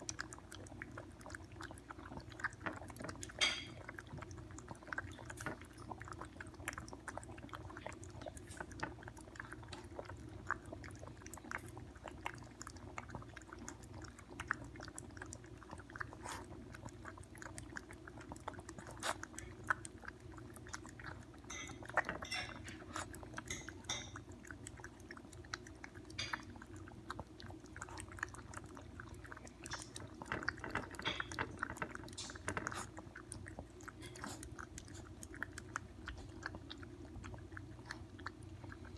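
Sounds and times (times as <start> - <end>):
dogs lapping milk: 0.0 - 38.9.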